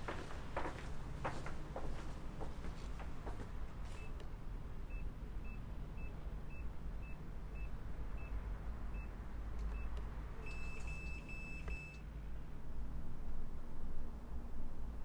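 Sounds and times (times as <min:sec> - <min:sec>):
keypad short beeps: 0:09.7 - 0:12.0.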